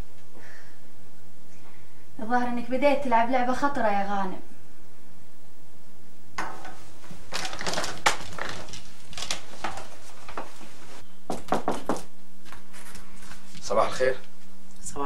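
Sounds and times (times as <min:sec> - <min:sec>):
objects clattering on a desk: 0:06.4 - 0:10.7.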